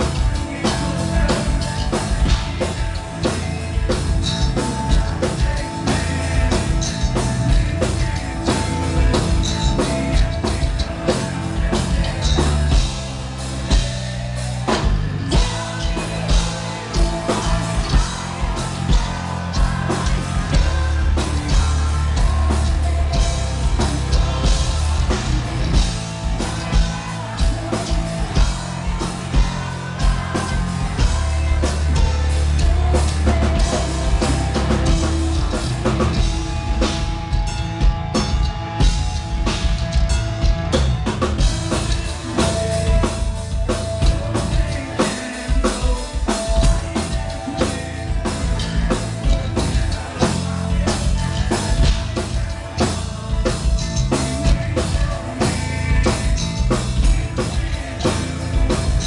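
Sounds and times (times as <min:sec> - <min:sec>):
metal band playing live: 0:00.0 - 0:59.0
pounding drum kit: 0:00.0 - 0:59.0
woman singing: 0:13.7 - 0:36.4, 0:41.8 - 0:59.0.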